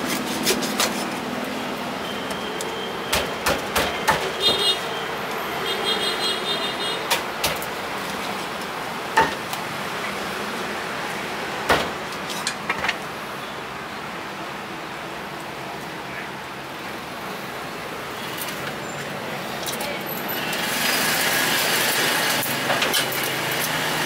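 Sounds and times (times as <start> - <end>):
street traffic noise: 0.0 - 24.0
cleaver chopping on wooden block: 3.1 - 4.6.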